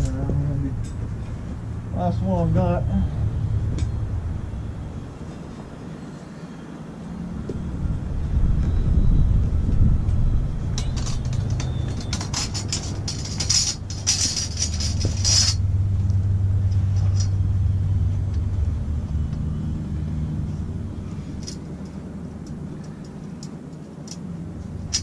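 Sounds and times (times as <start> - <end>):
low rumble: 0.0 - 5.9, 7.0 - 22.7
bandsaw blade rattling and scraping: 10.8 - 15.7, 24.0 - 25.0.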